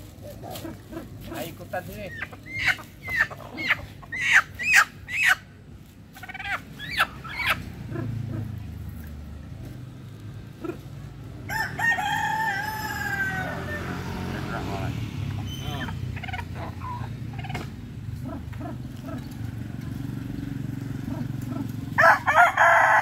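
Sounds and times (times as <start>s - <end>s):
chickens squawking: 0.1s - 9.0s, 10.5s - 23.0s
rooster crowing: 11.4s - 14.2s, 21.9s - 23.0s.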